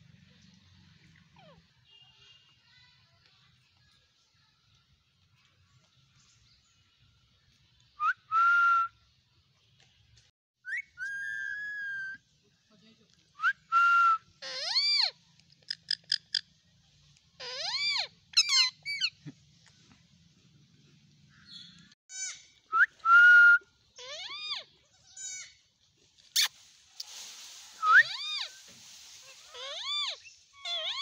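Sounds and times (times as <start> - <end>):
parakeets whistling and squawking: 14.4 - 15.1, 17.4 - 19.1, 27.8 - 28.6, 29.2 - 31.0.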